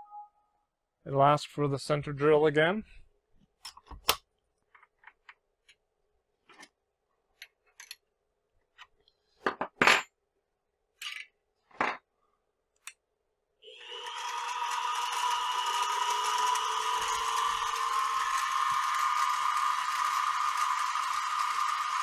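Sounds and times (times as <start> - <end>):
machine motor running: 13.7 - 22.0.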